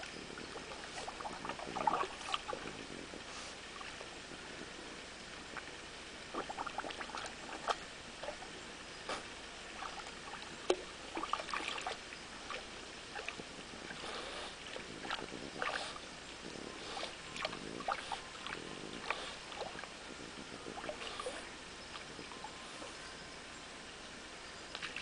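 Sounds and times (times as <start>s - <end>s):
stream trickling: 0.0s - 25.0s
dog splashing in water: 1.0s - 2.6s, 11.1s - 13.3s.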